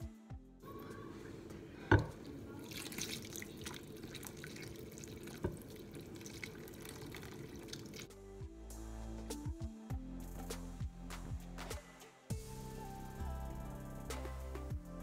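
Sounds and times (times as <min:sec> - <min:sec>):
background music: 0:00.0 - 0:02.3, 0:08.1 - 0:15.0
water pouring from a jug: 0:02.2 - 0:08.1.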